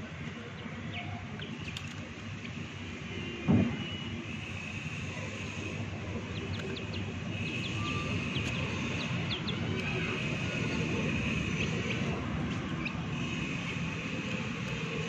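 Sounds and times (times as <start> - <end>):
chicks peeping: 6.4 - 12.1.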